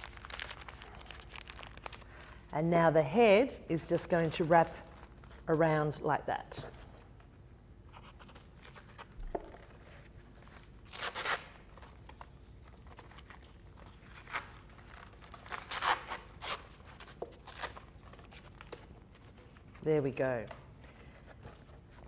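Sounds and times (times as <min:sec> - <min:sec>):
masking tape pulled and torn: 0:00.0 - 0:02.3, 0:08.0 - 0:09.3, 0:10.4 - 0:19.6.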